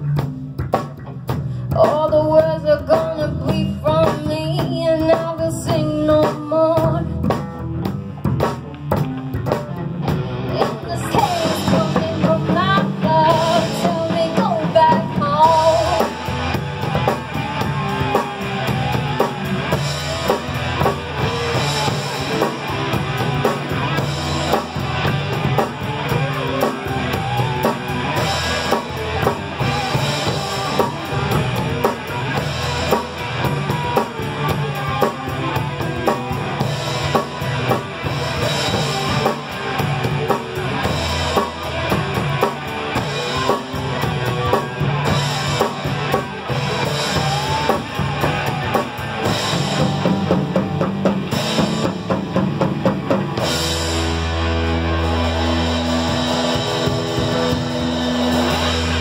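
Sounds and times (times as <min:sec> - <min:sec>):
electric bass guitar: 0:00.0 - 0:59.0
rock music with drums and guitar: 0:00.0 - 0:59.0.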